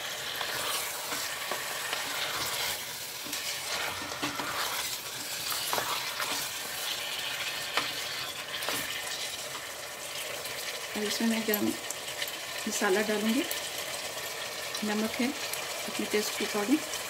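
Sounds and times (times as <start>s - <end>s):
wooden spatula scraping pot: 0.0s - 9.7s
meat sizzling in hot oil: 0.0s - 17.0s.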